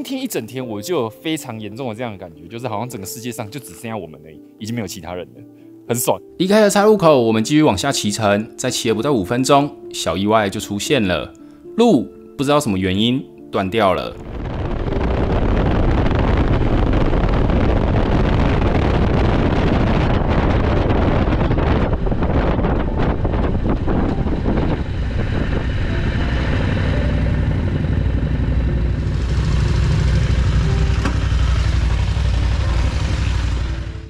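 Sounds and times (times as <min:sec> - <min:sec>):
motorcycle engine: 0:14.2 - 0:34.0
wind noise: 0:14.2 - 0:34.0.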